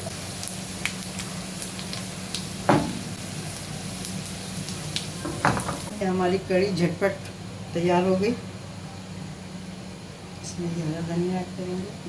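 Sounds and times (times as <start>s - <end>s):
onions sizzling in hot oil: 0.0s - 7.2s.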